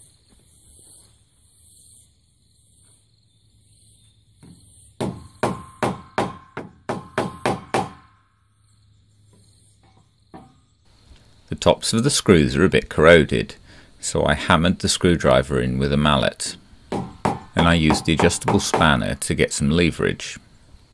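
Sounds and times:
mallet striking screwdriver handle: 16.9s - 19.0s.

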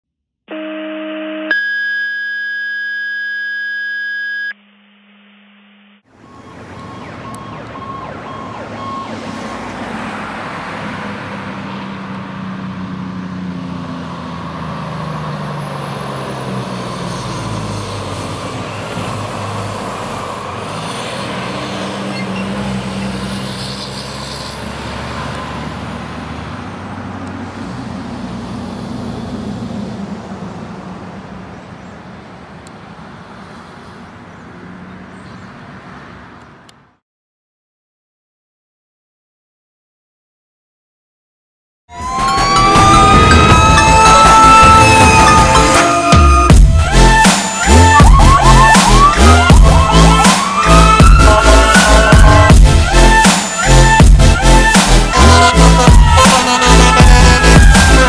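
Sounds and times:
road traffic: 0.5s - 2.4s, 5.1s - 37.0s, 41.9s - 58.0s
fire engine siren: 0.5s - 4.6s, 6.0s - 27.0s, 41.9s - 58.0s
electronic tones: 0.5s - 9.7s, 41.9s - 52.5s.

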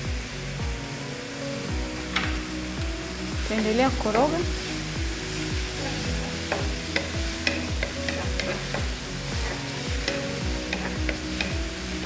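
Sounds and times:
background music with beat: 0.0s - 12.0s
vegetables sizzling in oil: 0.0s - 12.0s
spatula scraping pan: 5.7s - 12.0s.

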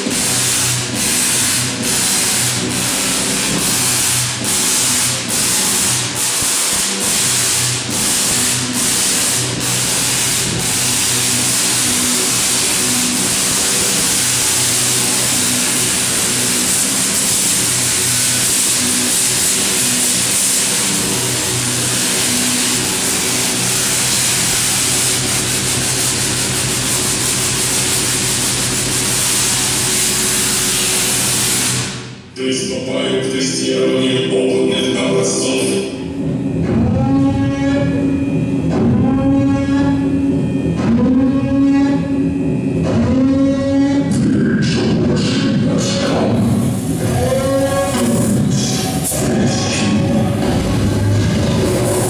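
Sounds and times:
tesla coil buzzing crackle: 0.0s - 32.2s, 45.2s - 52.0s.

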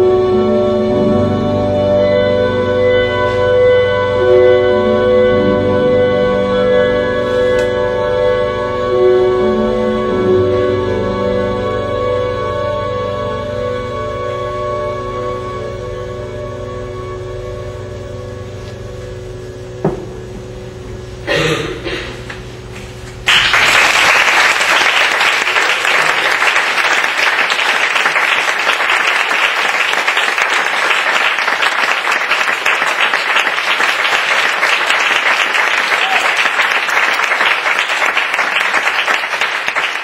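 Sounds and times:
music with held tones: 0.0s - 20.3s
audience applause: 23.3s - 40.0s.

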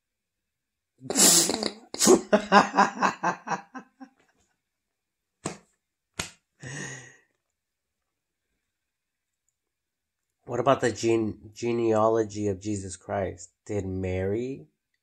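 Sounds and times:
man laughing: 1.8s - 4.2s
soft breathy sound: 6.6s - 7.3s.

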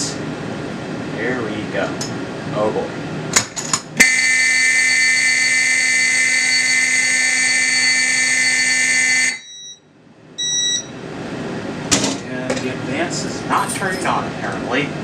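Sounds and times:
fire alarm horn buzzing: 4.0s - 11.0s.

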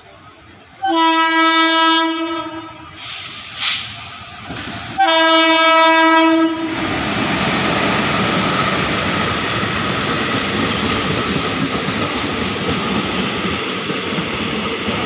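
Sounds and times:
train air horn blast: 0.8s - 3.0s, 5.0s - 6.8s
train wheels rushing past: 2.1s - 15.0s.

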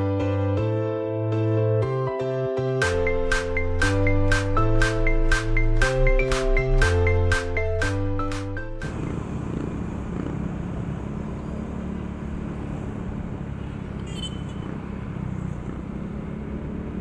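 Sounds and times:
road and wind rumble: 3.0s - 17.0s
motorcycle engine running: 8.6s - 17.0s.

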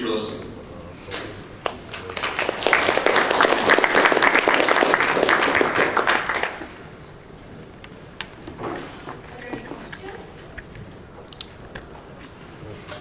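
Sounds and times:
audience applauding: 1.6s - 6.9s.

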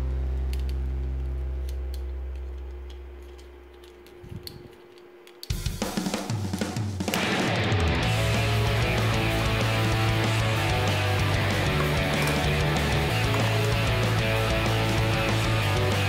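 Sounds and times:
held low chord: 0.0s - 4.0s
plastic toy parts clicking: 3.2s - 5.6s
rock music with drums: 5.5s - 16.0s.

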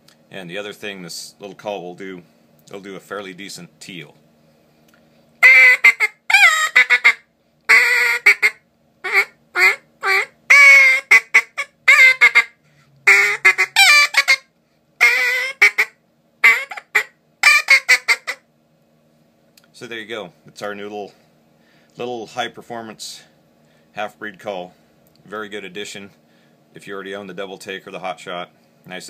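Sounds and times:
duck call quacks: 5.4s - 14.4s, 15.0s - 18.4s.

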